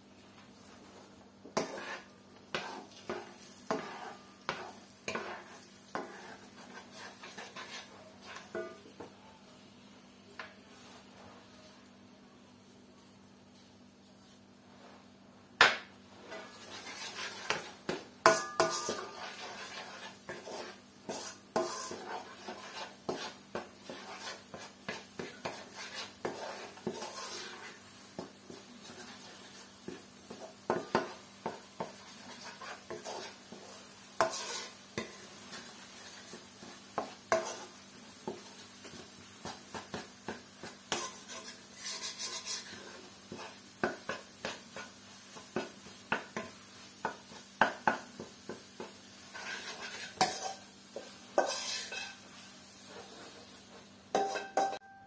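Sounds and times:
light sizzle: 0.0s - 55.0s
spatula scraping a wok: 0.5s - 8.9s, 16.1s - 54.8s
spatula knocking against pan: 45.6s - 46.5s, 47.1s - 48.9s.

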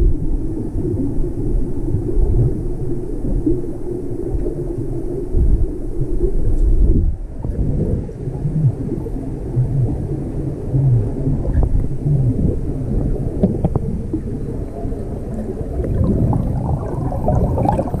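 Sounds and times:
low underwater rumble: 0.0s - 18.0s
bubbling: 6.9s - 18.0s.

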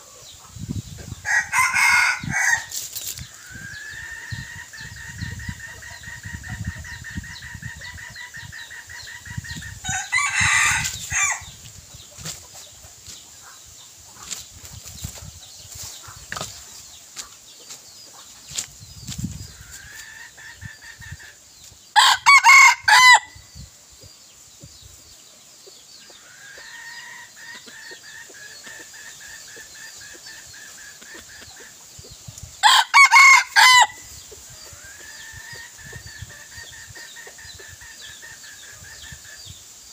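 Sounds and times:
roosters crowing: 1.2s - 11.6s, 21.9s - 23.4s, 26.2s - 28.1s, 32.6s - 36.0s.

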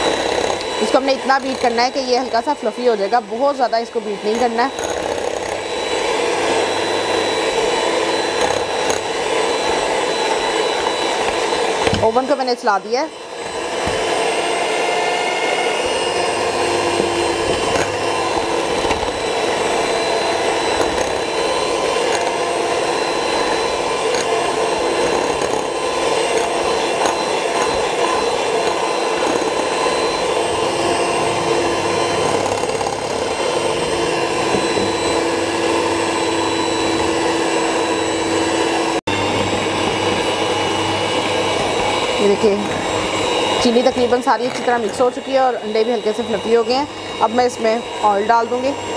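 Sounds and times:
electric hand mixer whisking: 0.0s - 48.9s.

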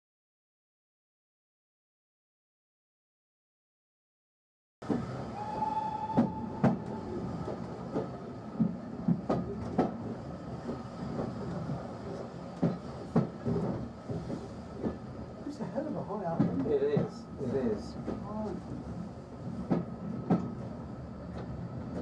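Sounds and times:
train wheels rumbling on rails: 4.8s - 22.0s.

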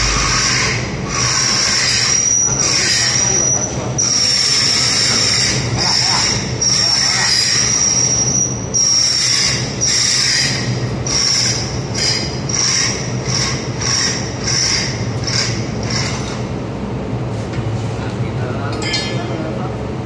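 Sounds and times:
squealing metal scraping: 0.0s - 13.0s
steady low hum: 0.0s - 20.0s.

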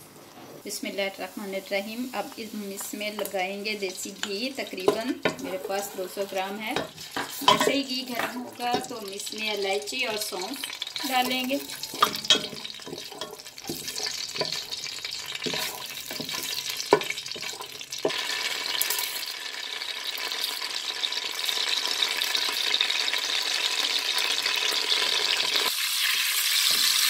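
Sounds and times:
seeds frying in hot ghee: 0.0s - 27.0s
wooden spatula scraping pot: 4.2s - 18.3s.

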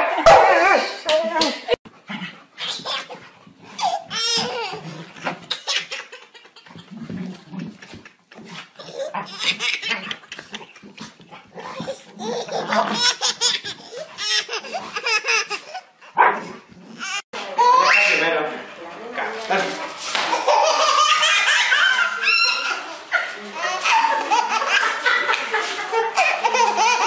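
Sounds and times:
baby laughing: 2.6s - 15.9s, 20.2s - 27.0s.

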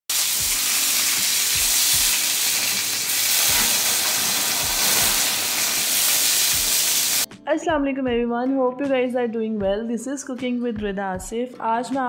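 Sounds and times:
meat sizzling on a grill pan: 0.1s - 7.3s.

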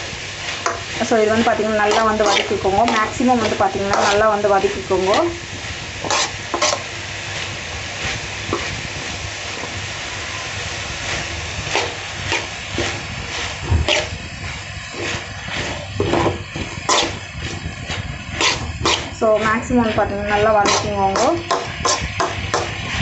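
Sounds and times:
vegetables sizzling in hot oil: 0.0s - 23.0s
spoon scraping and knocking pan: 0.6s - 5.4s, 6.0s - 6.9s, 11.6s - 22.9s.

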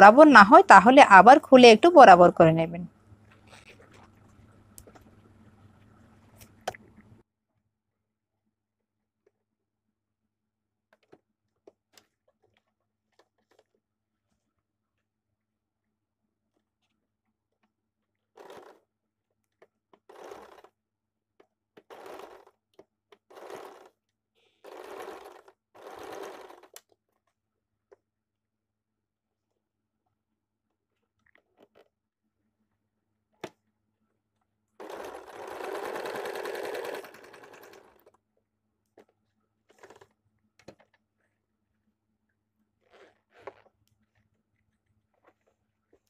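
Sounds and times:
sewing machine stitching: 18.4s - 18.8s, 20.0s - 20.7s, 21.8s - 22.6s, 23.2s - 24.0s, 24.6s - 26.8s, 34.8s - 38.1s, 39.7s - 40.1s.

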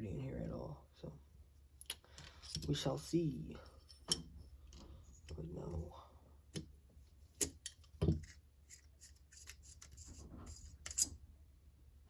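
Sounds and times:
metal parts clicking and tapping: 1.8s - 2.8s, 7.4s - 11.1s
scraping or rubbing: 8.1s - 11.2s.

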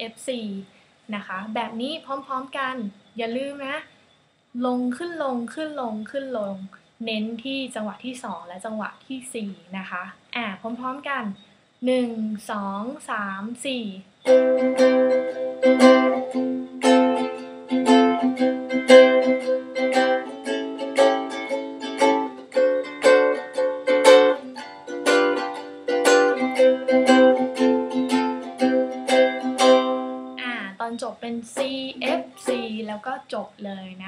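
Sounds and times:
ukulele strumming: 14.3s - 30.7s, 31.3s - 33.0s.

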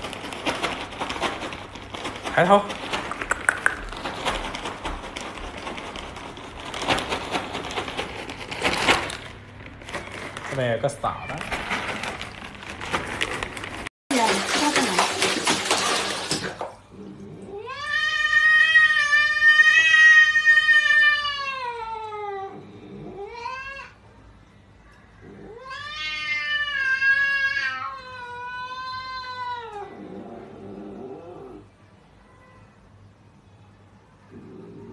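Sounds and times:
cat yowling: 17.5s - 24.0s, 25.2s - 30.1s.

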